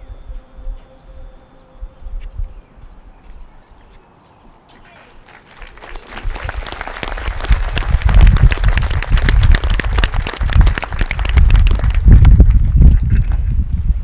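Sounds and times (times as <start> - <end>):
audience applauding: 4.9 - 12.6.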